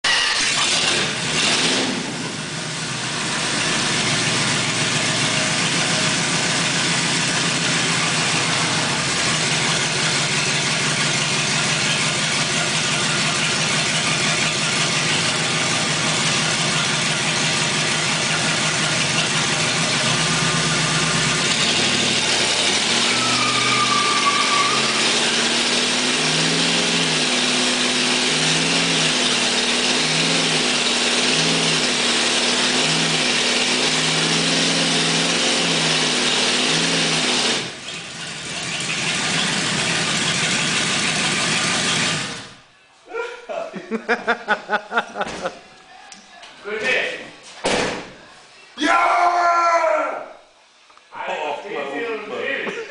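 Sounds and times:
car engine revving: 0:00.1 - 0:42.6
tyre squeal: 0:21.6 - 0:26.6.

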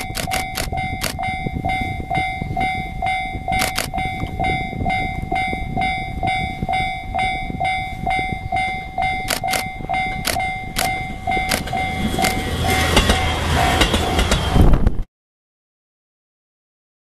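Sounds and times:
sharp clicks: 0:00.0 - 0:01.2, 0:03.6 - 0:04.4, 0:09.2 - 0:12.4
level crossing alarm ringing: 0:00.0 - 0:14.5
diesel railcar rumble: 0:00.0 - 0:15.0.

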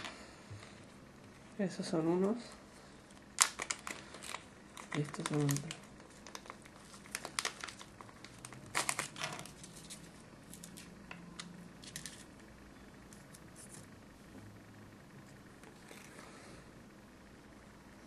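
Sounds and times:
plastic wrapping crinkling: 0:03.1 - 0:11.1.

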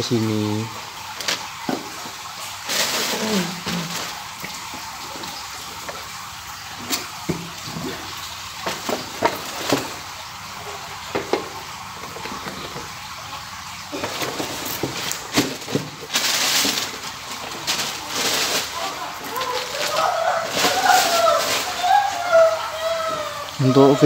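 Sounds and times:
steady hiss: 0:00.0 - 0:24.0
cardboard rustle: 0:01.2 - 0:05.3, 0:13.9 - 0:22.3.

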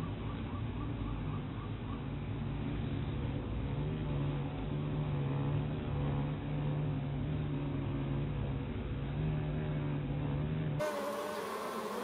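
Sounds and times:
honeybees buzzing: 0:10.8 - 0:12.0.

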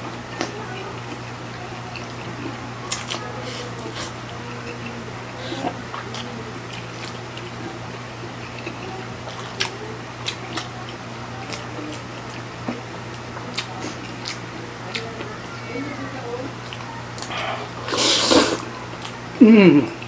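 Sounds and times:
steady low hum: 0:00.0 - 0:20.0
people slurping noodles: 0:02.9 - 0:07.7, 0:17.2 - 0:18.8.

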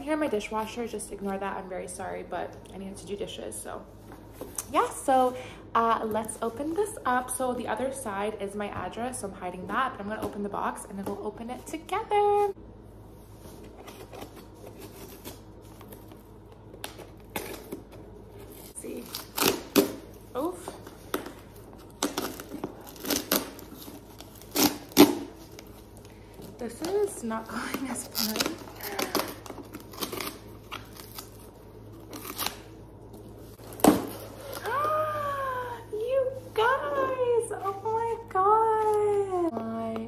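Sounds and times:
scissors and hands on packing tape: 0:13.6 - 0:25.9, 0:26.5 - 0:32.8
cardboard tearing: 0:21.8 - 0:25.8, 0:27.5 - 0:32.8.

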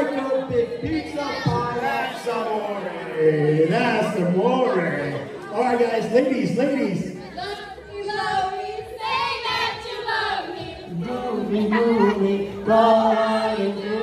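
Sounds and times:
girls singing unaccompanied: 0:07.2 - 0:14.0.

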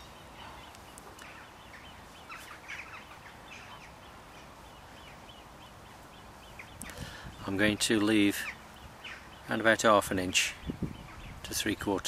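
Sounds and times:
faint bird chirps: 0:00.0 - 0:09.6.

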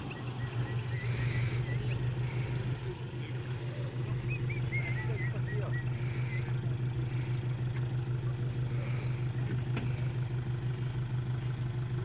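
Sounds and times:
truck engine idling: 0:00.0 - 0:12.0.

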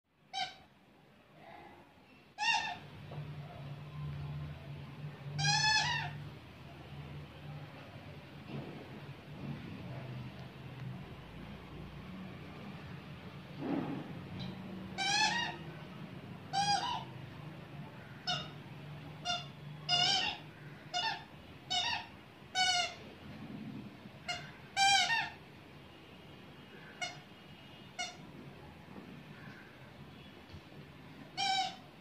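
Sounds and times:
squeaky toy squeaking: 0:00.3 - 0:00.7, 0:02.4 - 0:02.9, 0:05.3 - 0:06.2, 0:14.8 - 0:15.7, 0:16.5 - 0:17.2, 0:18.2 - 0:18.6, 0:19.2 - 0:23.1, 0:24.2 - 0:25.4, 0:27.0 - 0:27.3, 0:27.9 - 0:28.3, 0:31.3 - 0:32.0.

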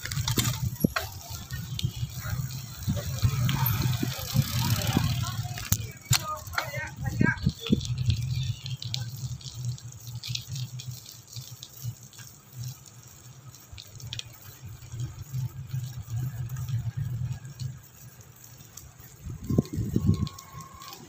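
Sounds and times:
wind buffeting microphone: 0:00.0 - 0:09.8, 0:19.0 - 0:21.0
bicycle clicks and rattles: 0:00.0 - 0:21.0.

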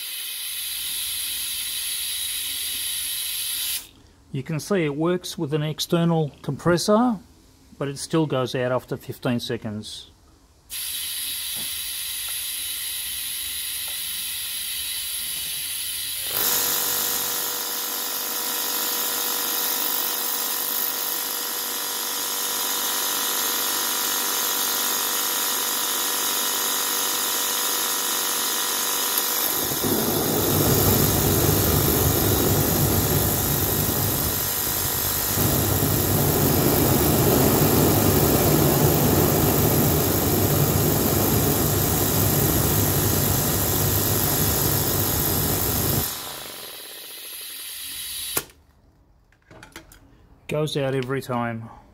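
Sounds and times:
hiss of air and machinery: 0:00.0 - 0:04.0, 0:10.7 - 0:16.3
whirring hum: 0:29.0 - 0:48.6
oil flame rumbling: 0:29.5 - 0:46.0.

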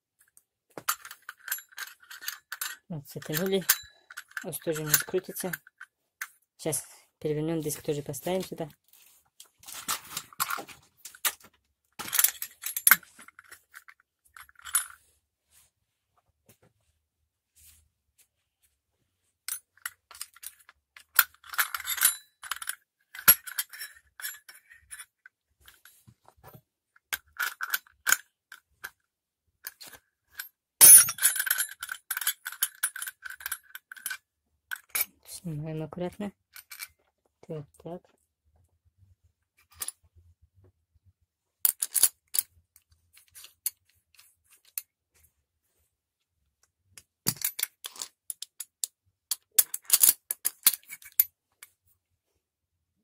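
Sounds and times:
small metal parts clinking: 0:00.8 - 0:05.9, 0:09.6 - 0:15.0, 0:19.5 - 0:26.0, 0:27.1 - 0:28.9, 0:29.6 - 0:35.1, 0:36.5 - 0:37.0, 0:41.6 - 0:42.5, 0:47.2 - 0:51.3.

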